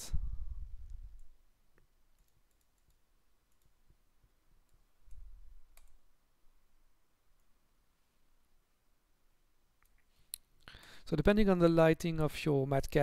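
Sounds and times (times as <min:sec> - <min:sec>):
computer mouse clicks: 0:00.8 - 0:03.8, 0:04.7 - 0:06.0.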